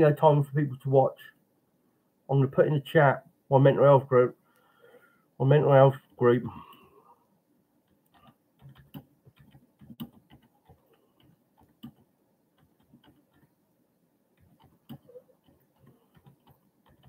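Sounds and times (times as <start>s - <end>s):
typing clicks: 8.0s - 12.0s, 14.4s - 17.0s.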